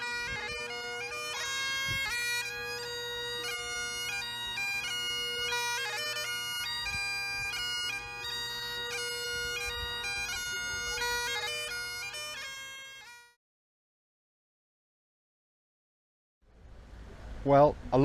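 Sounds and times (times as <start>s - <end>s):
bagpipe playing: 0.0s - 13.4s.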